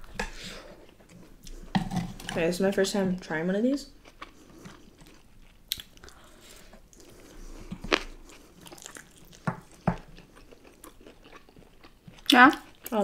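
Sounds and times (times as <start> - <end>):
crunchy chewing: 4.0 - 13.0.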